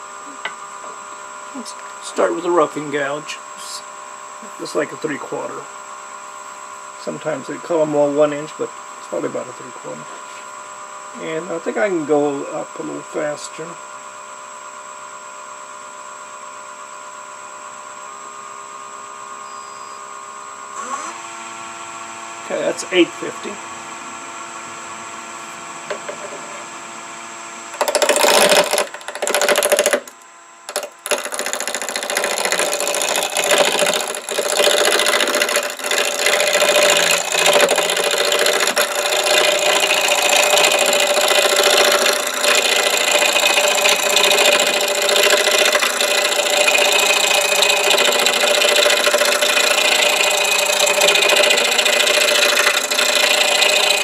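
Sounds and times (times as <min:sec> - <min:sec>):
lathe motor humming: 0:25.4 - 0:26.8, 0:27.7 - 0:54.0
gouge scraping spinning wood: 0:25.9 - 0:26.7, 0:27.7 - 0:54.0.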